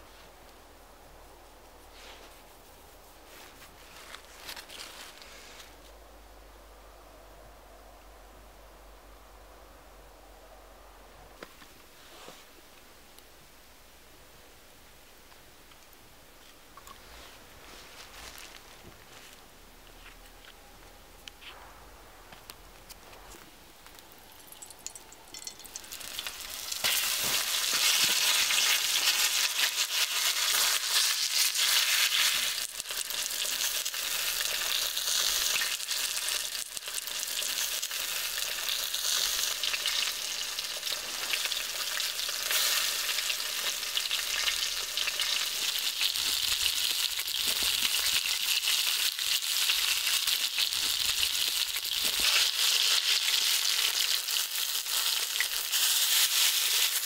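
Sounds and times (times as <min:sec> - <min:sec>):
frying sizzle: 0:23.9 - 0:57.0.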